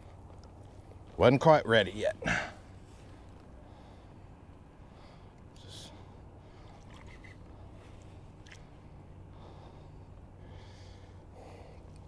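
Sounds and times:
faint low hum: 0:00.0 - 0:12.0
short breath: 0:09.3 - 0:11.9.

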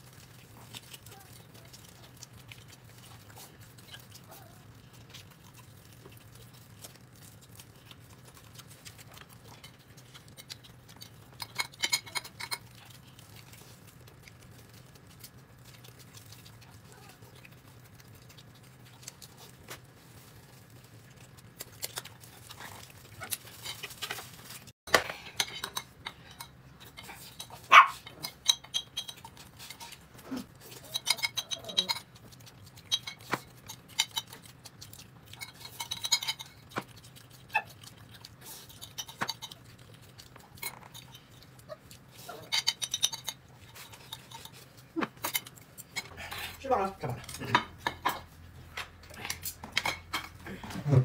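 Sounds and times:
utensils clinking on dishes: 0:10.4 - 0:12.9, 0:23.5 - 0:34.5, 0:35.2 - 0:36.9, 0:42.2 - 0:48.4, 0:49.2 - 0:51.0.

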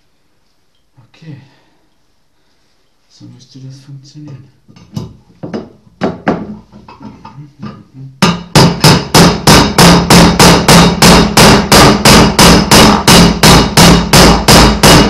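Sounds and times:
hammer striking metal: 0:08.2 - 0:15.0.

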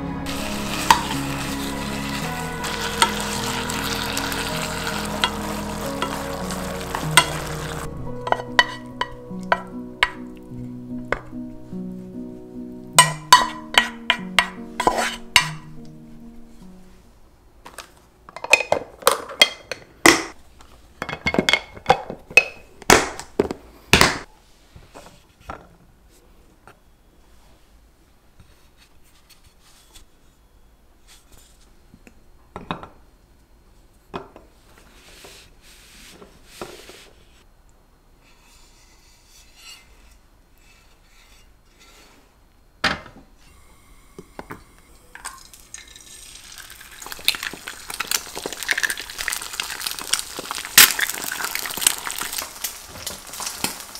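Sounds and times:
soft background music: 0:00.0 - 0:17.4
spatula scraping frying pan: 0:00.3 - 0:10.3, 0:13.0 - 0:15.7, 0:38.2 - 0:42.3.

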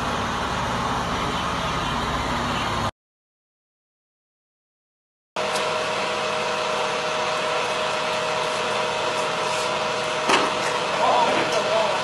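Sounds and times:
engine running: 0:00.0 - 0:02.9, 0:05.4 - 0:12.0.

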